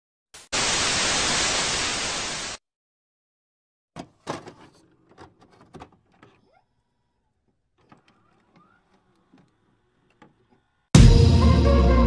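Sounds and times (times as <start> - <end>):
tv static hiss: 0.4 - 2.6.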